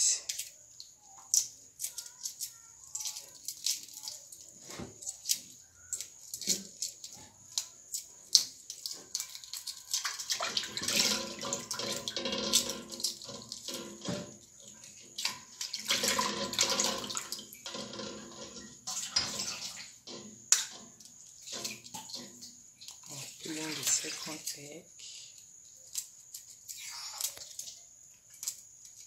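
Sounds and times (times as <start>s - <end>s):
water splashing in a metal bowl: 6.2s - 24.8s.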